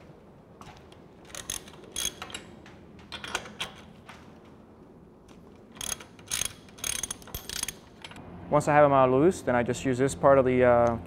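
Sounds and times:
wrench clicking and creaking: 0:01.3 - 0:02.5, 0:05.3 - 0:08.2.

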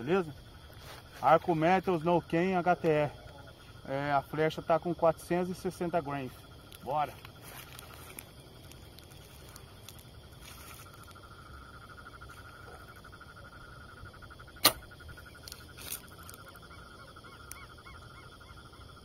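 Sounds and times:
bow string snap: 0:14.6 - 0:14.9.

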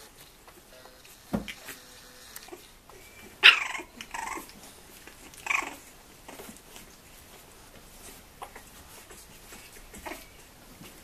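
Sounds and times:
puppies yelping and growling: 0:02.5 - 0:06.9, 0:08.4 - 0:10.5.

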